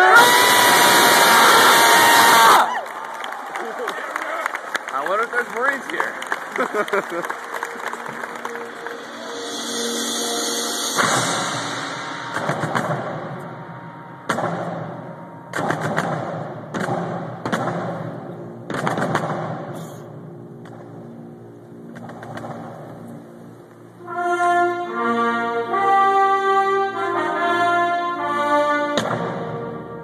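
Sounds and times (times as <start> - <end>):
military brass band playing: 5.8 - 21.4, 22.0 - 30.0
loud bangs with echoes: 10.9 - 19.8.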